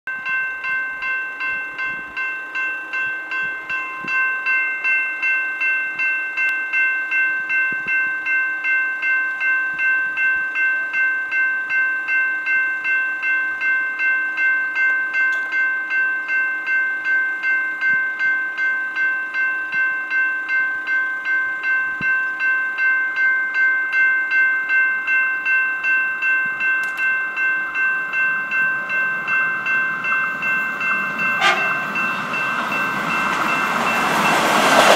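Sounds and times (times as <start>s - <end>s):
level crossing warning bell: 0.1s - 34.9s.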